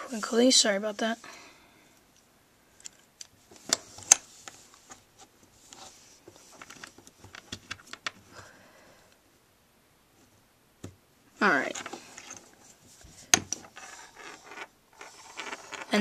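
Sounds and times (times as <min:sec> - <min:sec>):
paracord rustling: 0:02.0 - 0:08.4, 0:11.4 - 0:16.0.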